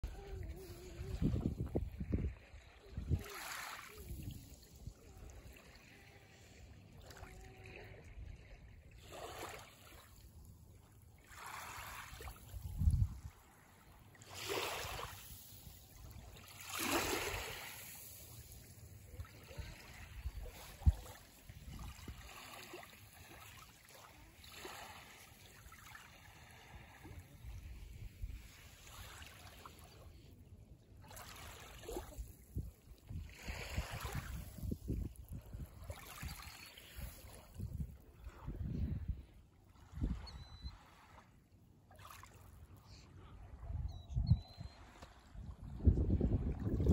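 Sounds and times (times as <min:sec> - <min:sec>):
small waves lapping on shore: 0:00.0 - 0:43.6, 0:44.8 - 0:46.9.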